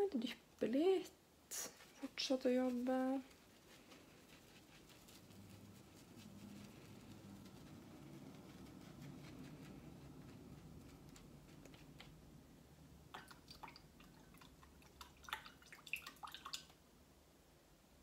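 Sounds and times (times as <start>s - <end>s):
brush swishing on mat: 1.5s - 12.4s
light clicks and taps: 8.3s - 12.4s.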